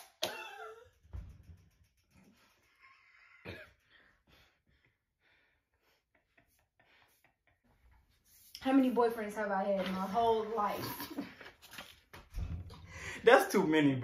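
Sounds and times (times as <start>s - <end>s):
faint short cough: 3.4s - 3.8s.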